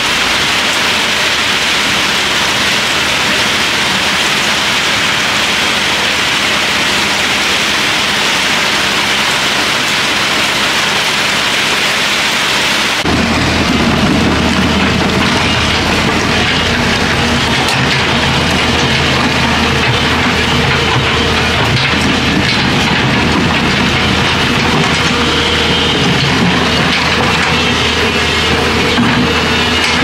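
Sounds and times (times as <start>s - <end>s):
excavator diesel engine running: 0.0s - 30.0s
heavy rain falling: 0.0s - 30.0s.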